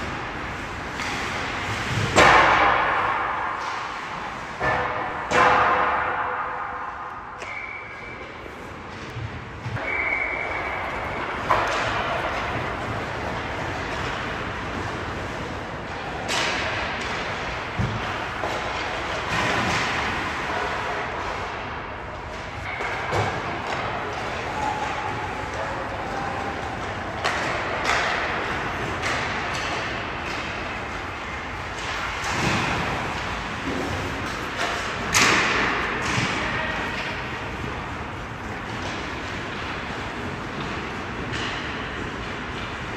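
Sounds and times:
hockey pucks and sticks cracking: 0.0s - 42.9s
steady rink hum: 0.0s - 42.9s
whistle blown: 7.4s - 8.2s, 9.8s - 11.2s
skate blades scraping ice: 24.0s - 35.8s.

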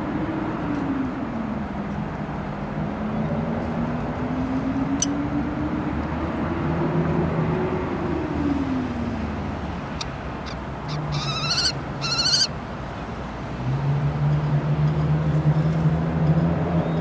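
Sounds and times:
kestrel trilled calls: 10.9s - 12.5s.

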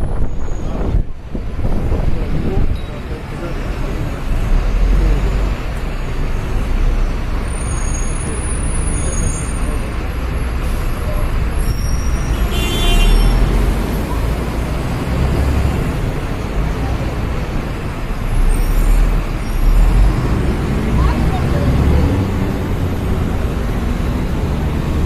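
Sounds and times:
bus engine rumble: 0.0s - 25.0s
traffic noise: 0.0s - 25.0s
high squeal: 7.5s - 9.9s, 10.7s - 12.5s.

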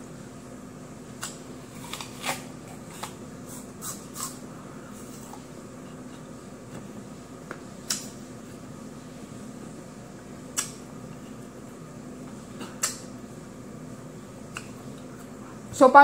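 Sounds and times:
apple crunching: 1.1s - 5.5s.

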